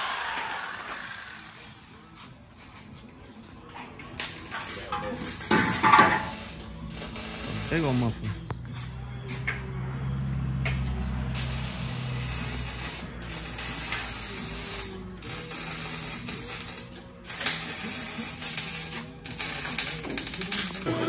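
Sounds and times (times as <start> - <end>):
power tool running: 0.0 - 1.9.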